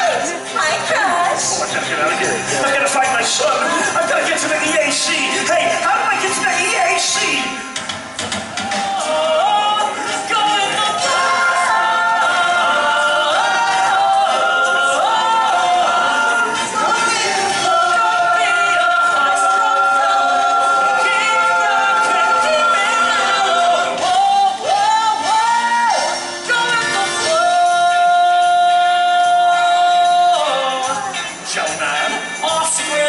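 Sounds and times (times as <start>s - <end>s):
loud backing music: 0.0s - 33.0s
cast singing: 9.0s - 33.0s.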